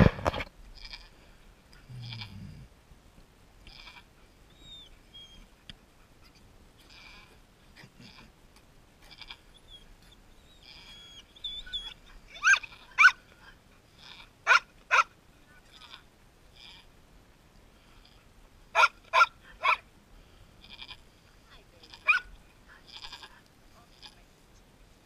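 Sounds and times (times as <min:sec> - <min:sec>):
goat kids bleating: 0:20.6 - 0:21.0, 0:21.8 - 0:24.2.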